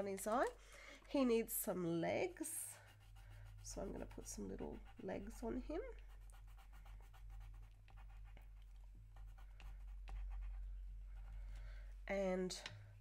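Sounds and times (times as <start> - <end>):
low steady hum: 0.0 - 13.0
pencil scratching on paper: 2.7 - 11.4.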